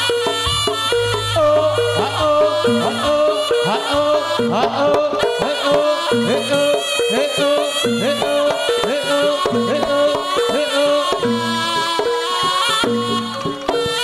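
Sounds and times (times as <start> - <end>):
amplified ensemble music: 0.8 - 5.1.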